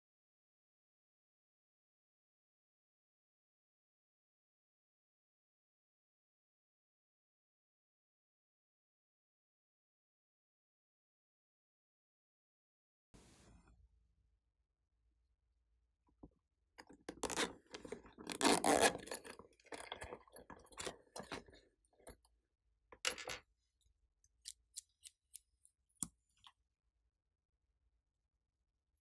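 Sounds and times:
plastic case scraping and rubbing: 0:17.1 - 0:21.6.

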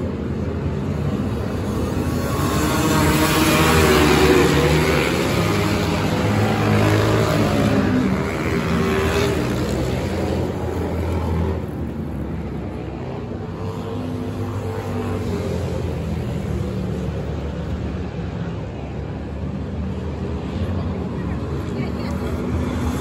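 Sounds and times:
dirt bike engines racing past: 0:00.0 - 0:18.8, 0:19.6 - 0:23.0.

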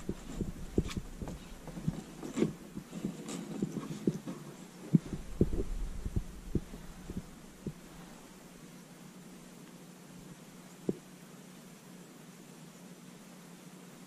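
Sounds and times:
dull low knocks and thumps: 0:00.0 - 0:02.9, 0:04.9 - 0:08.1.

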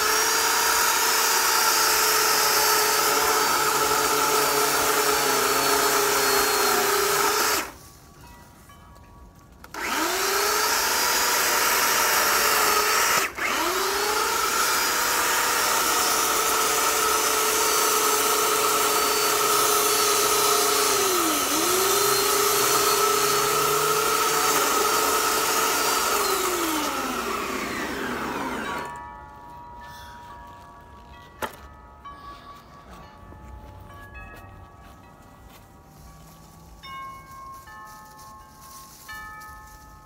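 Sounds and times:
electric chainsaw running: 0:00.0 - 0:07.8, 0:09.7 - 0:29.0.

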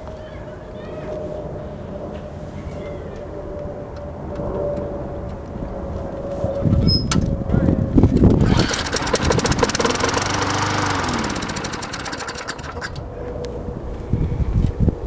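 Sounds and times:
lawn mower engine running: 0:08.3 - 0:13.2.

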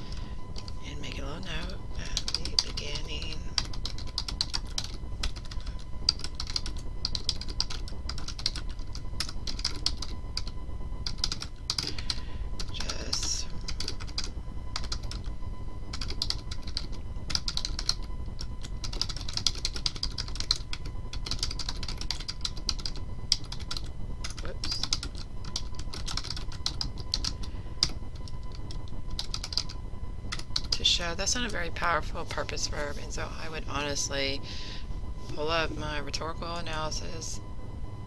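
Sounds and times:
low steady hum: 0:00.0 - 0:38.0
typing on computer keyboard: 0:03.6 - 0:10.5, 0:11.1 - 0:12.0, 0:12.6 - 0:15.3, 0:15.9 - 0:30.8.

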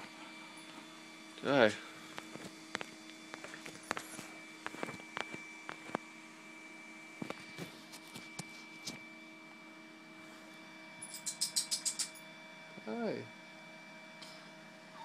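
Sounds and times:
faint hum: 0:00.0 - 0:15.0
rapid sharp high clicks: 0:11.1 - 0:12.2.

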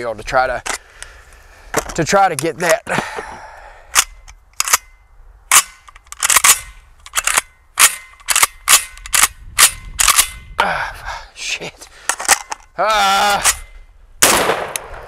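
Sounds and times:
sharp gunshots: 0:14.2 - 0:15.0.

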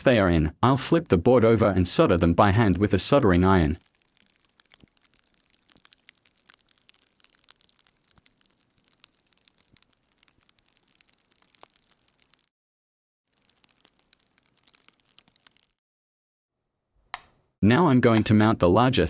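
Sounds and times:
soldering clicks and crackles: 0:01.5 - 0:12.5, 0:13.3 - 0:15.8.

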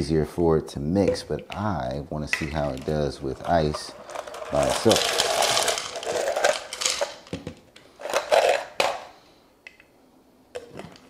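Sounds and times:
ice cubes clattering into plastic jar: 0:03.6 - 0:07.2.

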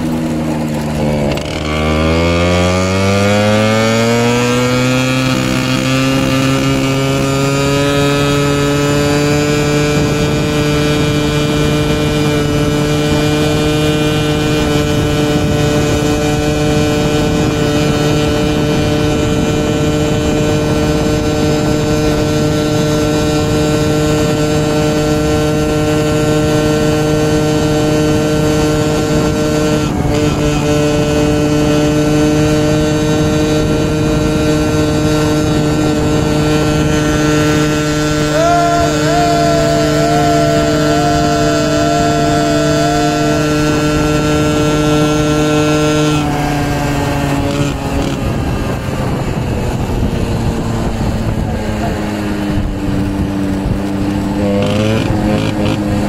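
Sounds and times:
small motorcycle engine running: 0:00.0 - 0:56.0
wind noise: 0:00.0 - 0:56.0.

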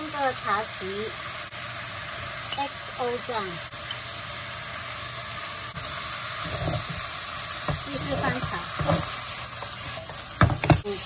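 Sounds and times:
vegetables sizzling in a wok: 0:00.0 - 0:11.0
wooden spatula scraping and knocking pan: 0:06.4 - 0:11.0.

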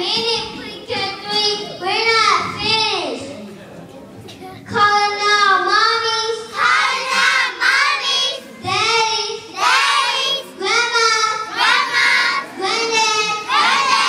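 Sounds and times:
children singing in unison: 0:06.5 - 0:08.4, 0:09.6 - 0:14.0.

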